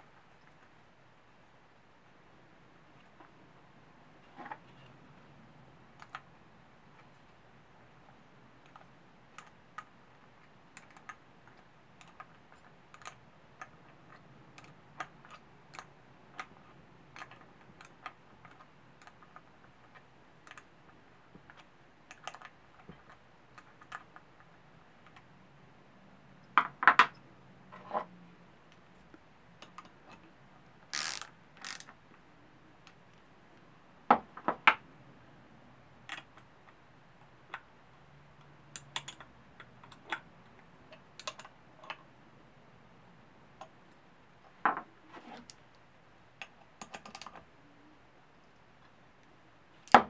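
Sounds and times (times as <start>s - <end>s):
wrench clicking on bolt: 30.9s - 31.9s.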